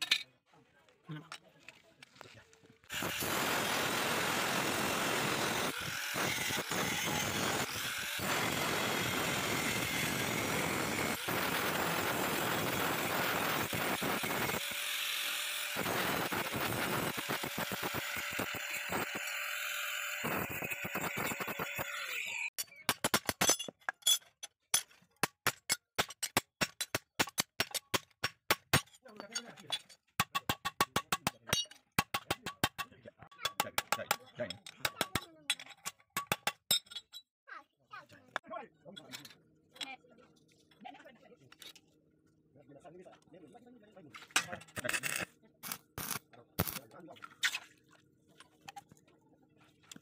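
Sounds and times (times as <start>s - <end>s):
angle grinder cutting steel: 2.9s - 22.5s, 44.8s - 46.8s.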